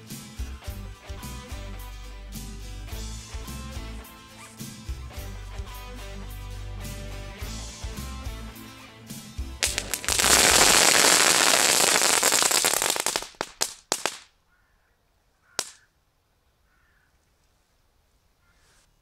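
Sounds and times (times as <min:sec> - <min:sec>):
firework crackling rush: 0:09.6 - 0:14.3
sharp firework cracks: 0:09.6 - 0:14.3, 0:15.6 - 0:15.8.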